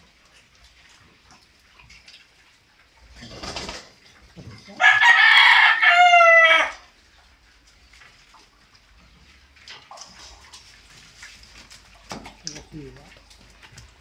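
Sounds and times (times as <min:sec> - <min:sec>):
rooster crowing: 0:04.8 - 0:06.9.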